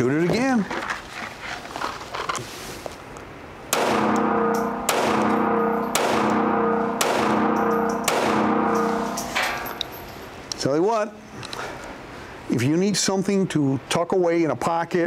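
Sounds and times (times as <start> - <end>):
pistol shots echoing indoors: 3.7 - 9.9.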